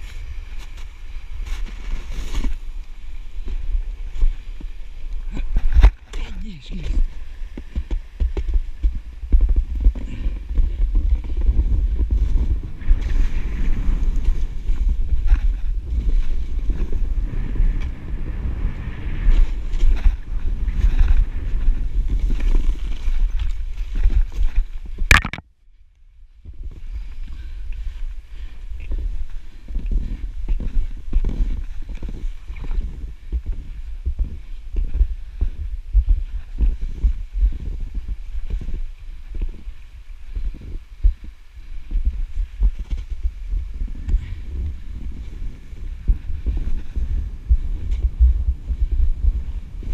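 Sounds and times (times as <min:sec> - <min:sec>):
skis on snow: 0:00.0 - 0:05.8, 0:06.6 - 0:24.9
wind rumbling on microphone: 0:00.0 - 0:49.9
knocks and thumps on camera: 0:25.1 - 0:25.4.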